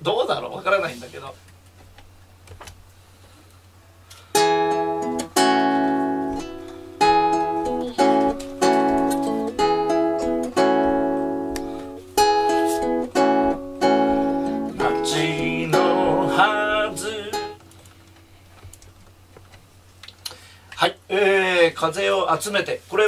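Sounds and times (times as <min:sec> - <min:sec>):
acoustic guitar strumming: 0:04.3 - 0:18.6
man singing: 0:14.7 - 0:17.6.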